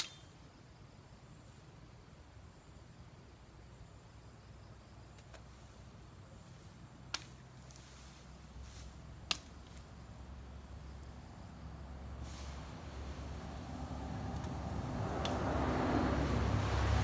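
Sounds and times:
knife chopping branch: 7.1s - 7.5s, 9.2s - 9.9s.

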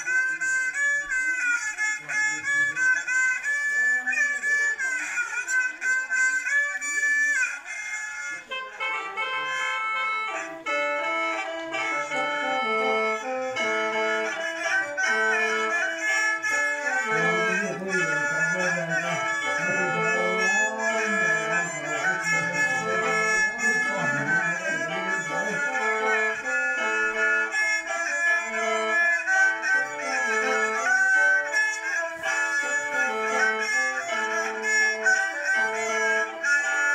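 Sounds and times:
bowed fiddle: 0.0s - 36.9s
mouth organ sustained chords: 8.6s - 36.9s.

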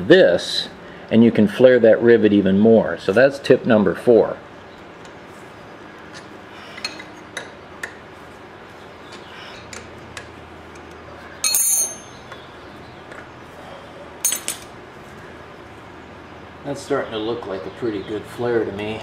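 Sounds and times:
ringing metallic clink: 11.4s - 12.4s, 14.2s - 14.7s.

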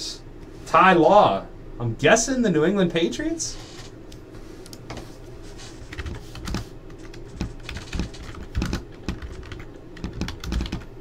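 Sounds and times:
computer keyboard typing: 5.9s - 10.9s.

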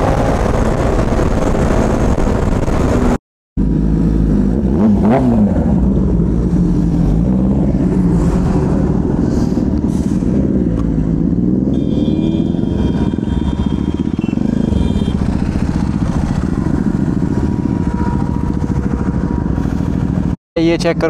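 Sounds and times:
motorcycle engine running: 10.4s - 20.4s.

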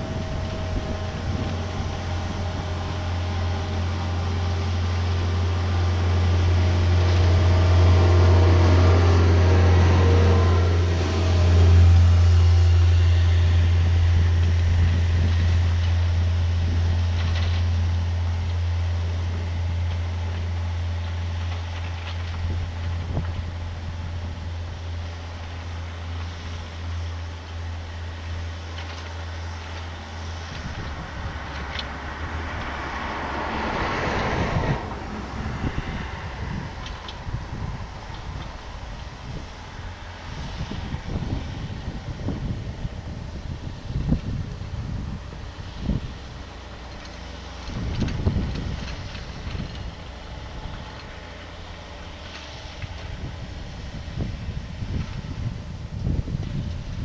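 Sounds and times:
car driving past: 0.0s - 18.2s, 28.6s - 42.6s
excavator diesel engine hum: 0.0s - 57.0s
wind hiss on microphone: 0.0s - 57.0s.

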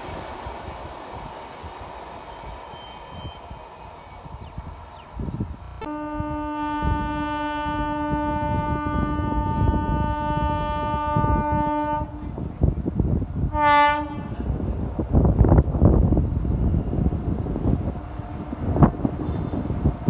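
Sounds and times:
train rumble: 0.0s - 20.0s
train horn blasts: 5.7s - 12.5s, 13.5s - 14.6s, 17.9s - 19.9s.

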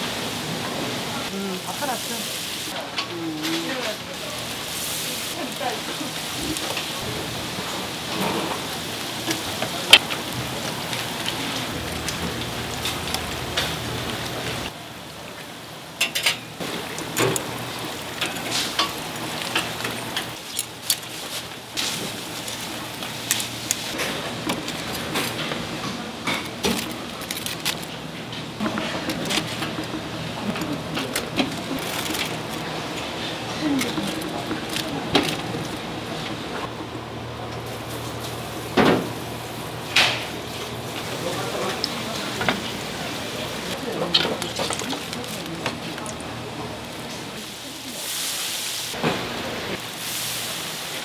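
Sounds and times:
food sizzling in hot oil: 0.1s - 2.8s, 3.6s - 14.8s, 46.8s - 51.0s.

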